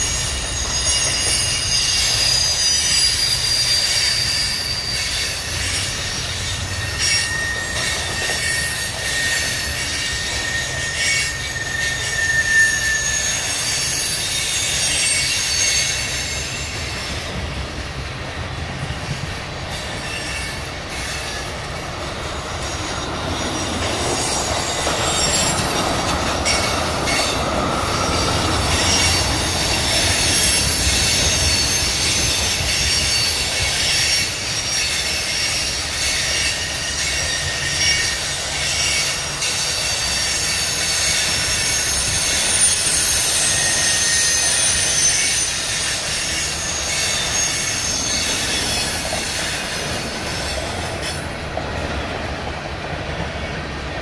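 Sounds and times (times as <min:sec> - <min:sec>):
train wheels rumbling on rails: 0:00.0 - 0:54.0
wheels squealing: 0:00.0 - 0:54.0.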